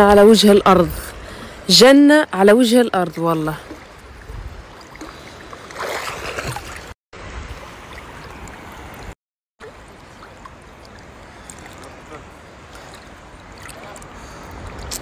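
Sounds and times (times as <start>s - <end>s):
sea water lapping and sloshing: 3.0s - 15.0s
water splash: 3.4s - 15.0s.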